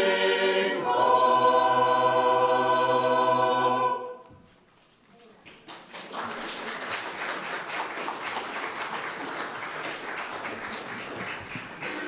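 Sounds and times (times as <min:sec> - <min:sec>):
crowd applauding: 0:05.4 - 0:12.0.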